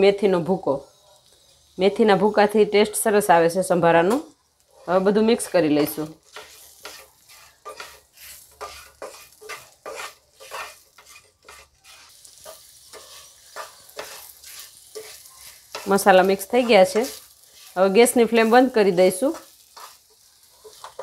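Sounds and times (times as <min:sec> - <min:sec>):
oil sizzling: 0:00.0 - 0:21.0
wooden spatula scraping a pan: 0:04.6 - 0:21.0.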